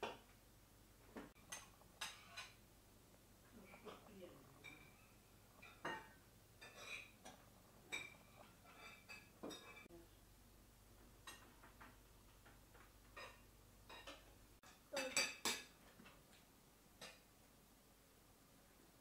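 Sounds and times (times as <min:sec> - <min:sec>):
cutlery clinking on plates: 0:01.3 - 0:02.6, 0:04.6 - 0:09.9, 0:13.1 - 0:16.2.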